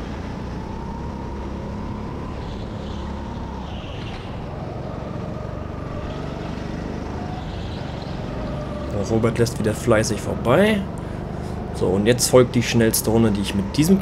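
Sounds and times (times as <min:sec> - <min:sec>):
go-kart engine running: 0:00.9 - 0:12.0.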